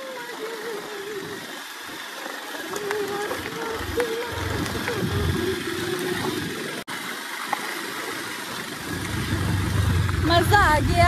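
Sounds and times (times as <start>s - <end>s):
motorcycle engine running: 2.6s - 6.4s, 8.8s - 11.0s
road and wind noise: 8.6s - 11.0s.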